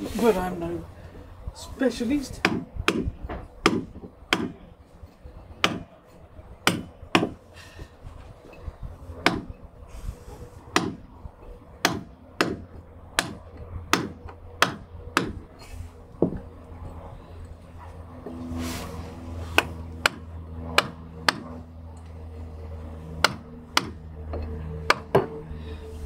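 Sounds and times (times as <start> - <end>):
wooden hammer striking caulking iron: 2.4 - 4.6, 5.6 - 5.9, 6.6 - 7.4, 9.2 - 9.6, 10.7 - 11.0, 11.8 - 15.4, 19.6 - 21.5, 23.2 - 25.3.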